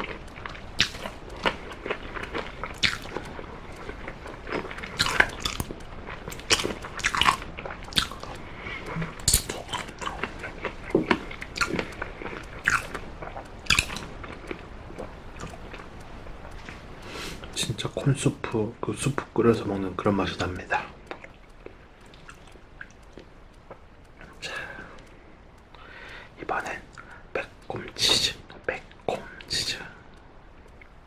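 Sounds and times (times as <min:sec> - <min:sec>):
biting and crunching chicken bone: 0:00.0 - 0:15.9
wet chewing: 0:00.0 - 0:17.8, 0:20.2 - 0:29.1.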